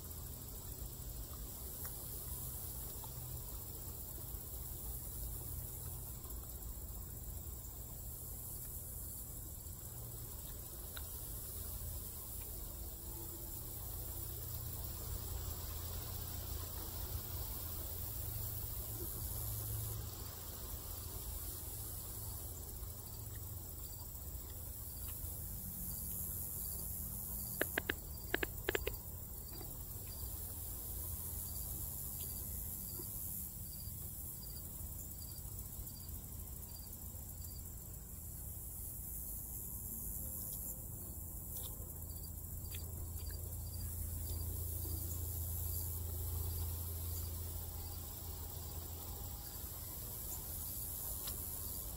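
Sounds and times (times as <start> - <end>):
insects chirping: 0.0 - 51.9
sharp clicks: 27.5 - 29.7.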